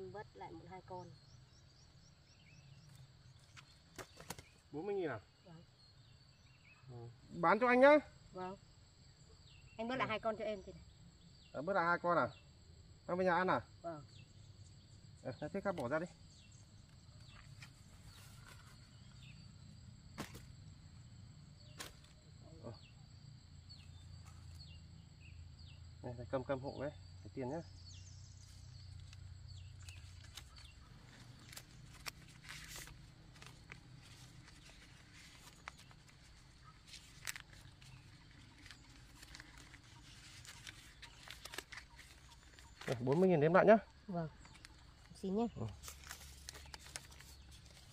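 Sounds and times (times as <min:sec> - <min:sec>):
high insect hum: 0:00.0 - 0:47.9
paper banknotes crackling: 0:28.5 - 0:43.4, 0:44.4 - 0:47.9.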